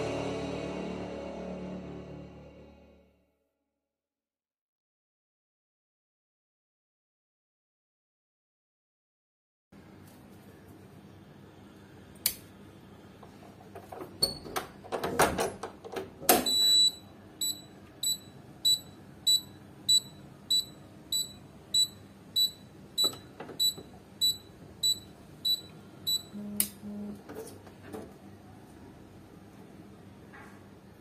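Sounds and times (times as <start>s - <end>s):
buzzer alarm beeping: 16.4s - 27.2s.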